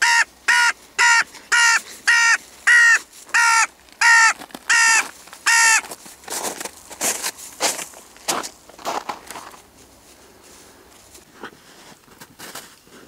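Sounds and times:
crow cawing: 0:00.0 - 0:05.9.

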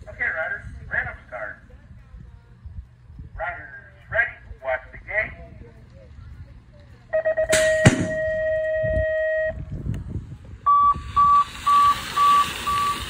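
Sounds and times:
short high beeps: 0:07.2 - 0:09.6, 0:10.7 - 0:13.0.

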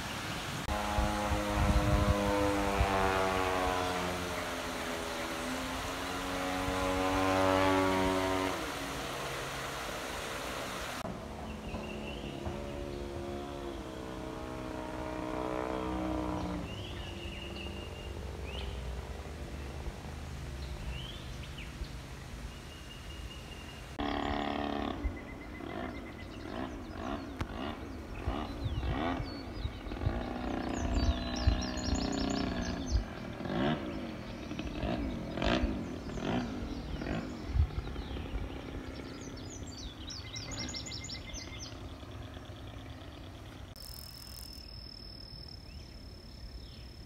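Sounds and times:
model airplane motor droning: 0:00.6 - 0:11.0.

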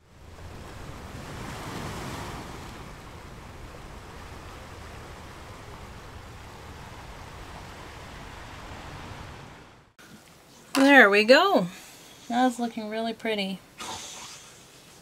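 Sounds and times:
ocean waves washing: 0:00.0 - 0:10.0.

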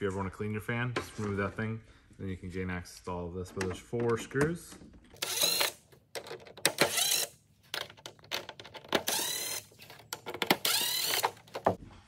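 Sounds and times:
cordless driver whining: 0:05.2 - 0:11.8.

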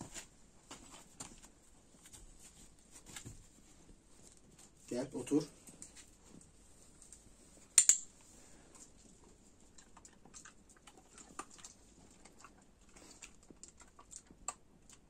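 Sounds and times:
puppy claws on concrete: 0:07.0 - 0:15.0.

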